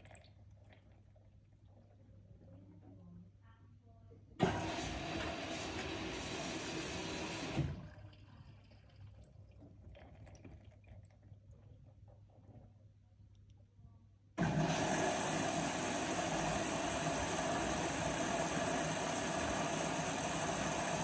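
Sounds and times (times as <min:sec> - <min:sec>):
faint water sounds in drum: 0:00.0 - 0:03.2, 0:04.4 - 0:21.0
water rushing into drum: 0:04.4 - 0:08.0, 0:14.4 - 0:21.0.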